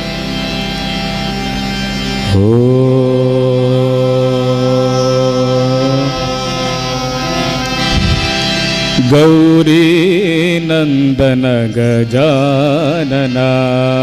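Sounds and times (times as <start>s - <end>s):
person singing devotional song: 2.2s - 14.0s
quiet drone: 2.3s - 9.6s.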